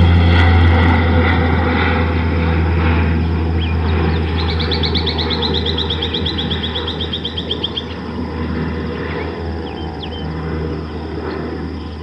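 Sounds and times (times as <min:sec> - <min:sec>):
steady low rumble: 0:00.0 - 0:12.0
bird trilling: 0:03.1 - 0:12.0.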